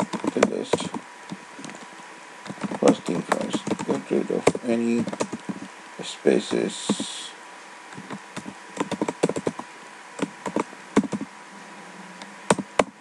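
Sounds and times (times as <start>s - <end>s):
computer keyboard typing: 0.0s - 1.0s, 2.5s - 5.4s, 8.0s - 9.6s, 10.2s - 11.3s, 12.5s - 12.9s.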